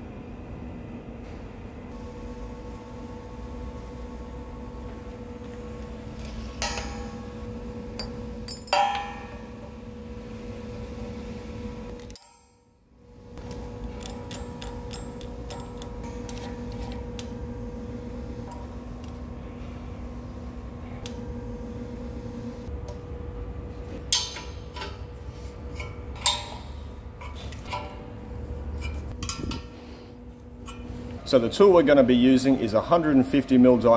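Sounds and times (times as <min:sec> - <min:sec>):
steady hum: 0:00.0 - 0:33.9
metal clamps clanking on table: 0:08.0 - 0:09.4
steel clamps clanking on metal: 0:08.0 - 0:09.5, 0:24.1 - 0:25.1, 0:25.8 - 0:28.1.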